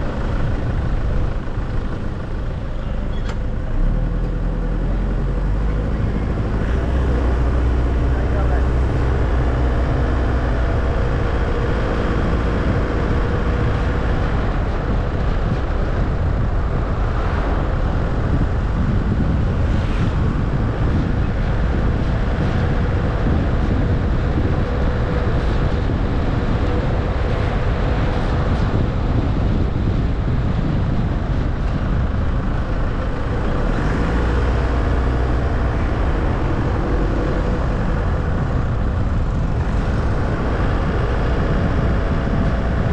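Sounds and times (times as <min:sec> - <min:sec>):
car engine and tyre rumble: 0:00.0 - 0:42.9.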